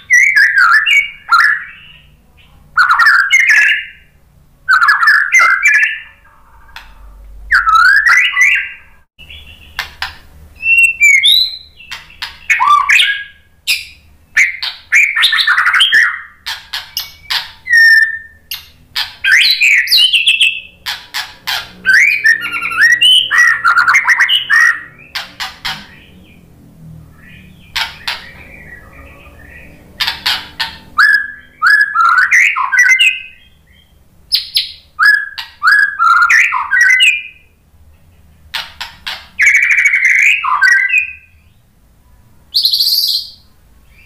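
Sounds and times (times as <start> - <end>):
bird singing whistled phrases: 0.0 - 2.1, 2.8 - 4.1, 4.7 - 6.2, 7.5 - 9.8, 10.6 - 18.6, 19.2 - 20.7, 21.8 - 25.2, 27.2 - 37.5, 39.4 - 41.6, 42.5 - 44.0
sharp bird clicks: 9.6 - 21.8, 27.6 - 28.5, 30.0 - 30.9, 38.5 - 40.7.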